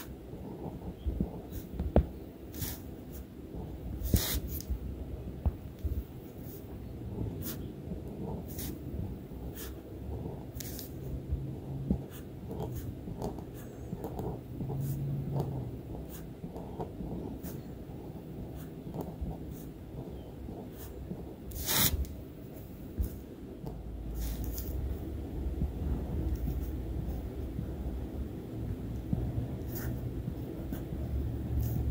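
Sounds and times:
pen tip scratching on paper: 0:02.5 - 0:03.2, 0:04.0 - 0:04.7, 0:07.2 - 0:08.8, 0:09.4 - 0:11.0, 0:11.8 - 0:22.1, 0:24.2 - 0:24.8, 0:29.6 - 0:31.9.

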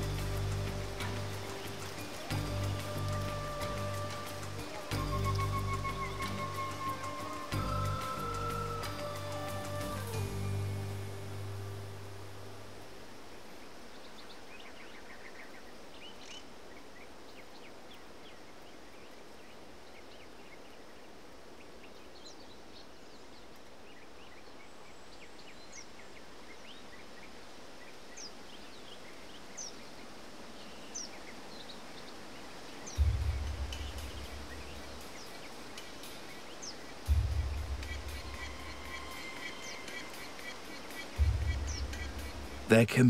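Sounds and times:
descending whistled calls: 0:00.0 - 0:11.2, 0:32.8 - 0:42.9
soft hiss: 0:00.0 - 0:43.0
bird chirps and calls: 0:32.8 - 0:42.7.

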